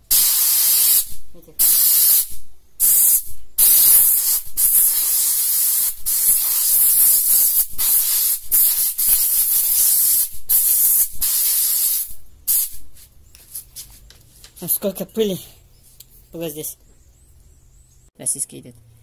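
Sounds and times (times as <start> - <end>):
compressed air blow gun hissing: 0.0 - 12.8.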